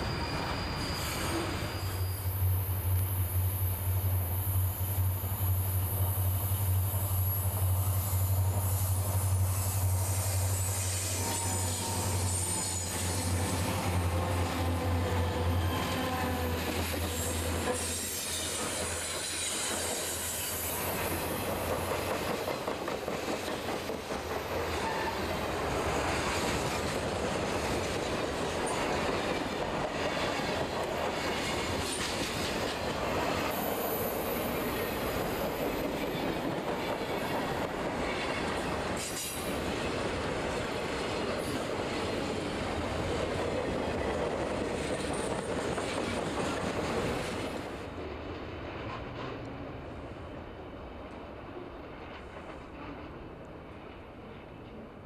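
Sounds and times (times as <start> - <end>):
wheel squeal: 0.0 - 2.6
diesel locomotive engine drone: 0.0 - 55.0
train wheels rumbling on rails: 0.0 - 55.0.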